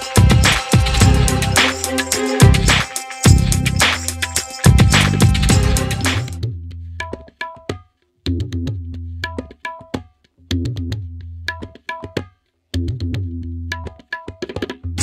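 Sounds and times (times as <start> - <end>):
deep bass drum: 0.2 - 1.7, 2.4 - 6.6.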